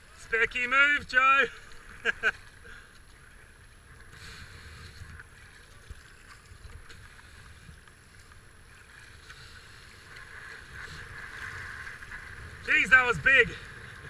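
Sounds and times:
paddle splashes: 0:00.0 - 0:14.0
whitewater rushing: 0:12.6 - 0:13.7.

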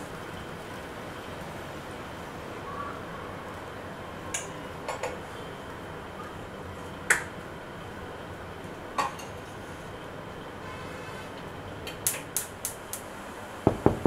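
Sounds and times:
steady low hiss: 0:11.6 - 0:14.0.

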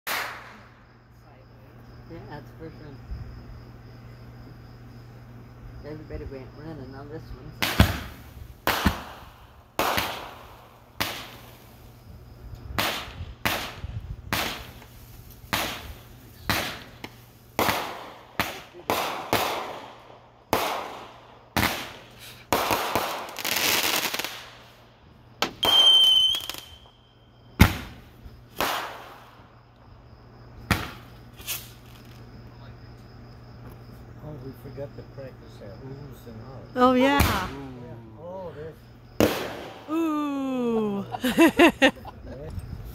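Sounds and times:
fireworks bangs: 0:00.1 - 0:00.9, 0:07.6 - 0:12.0, 0:12.7 - 0:24.8, 0:25.4 - 0:27.0, 0:27.6 - 0:29.4, 0:30.6 - 0:32.2, 0:37.0 - 0:37.7, 0:39.2 - 0:39.9
fireworks crackling: 0:00.1 - 0:00.9, 0:07.6 - 0:12.0, 0:12.8 - 0:27.0, 0:27.6 - 0:29.5, 0:30.7 - 0:32.3, 0:39.2 - 0:40.0
firework whistle: 0:25.4 - 0:29.3.

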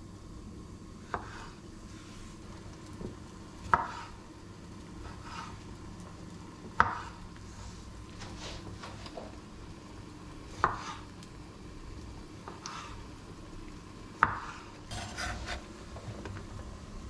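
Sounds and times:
knife cutting and scraping: 0:14.9 - 0:15.7.

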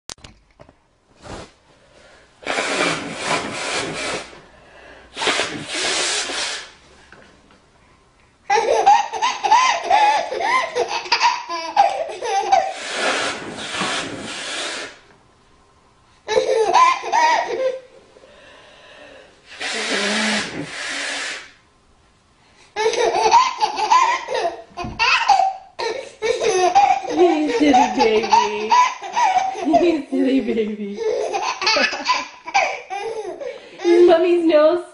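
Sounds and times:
woman blowing her nose: 0:02.4 - 0:06.8, 0:12.6 - 0:15.1, 0:19.4 - 0:21.6
baby giggling: 0:08.5 - 0:13.4, 0:16.3 - 0:17.9, 0:22.8 - 0:34.2.

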